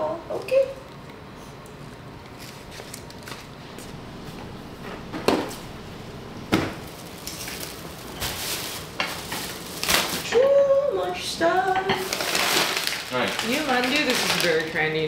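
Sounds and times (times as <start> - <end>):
plastic bags rustling: 6.6 - 15.0.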